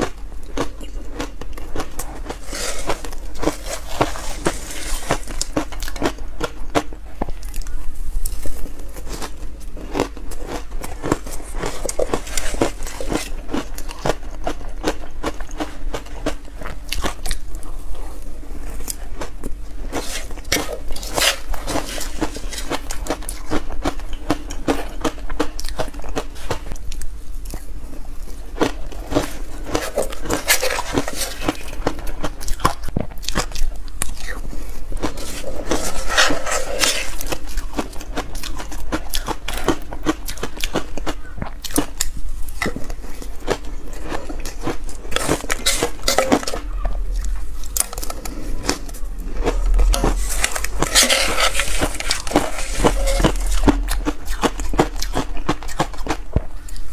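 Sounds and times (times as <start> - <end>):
ice crunching between teeth: 0.0 - 17.7, 28.6 - 56.9.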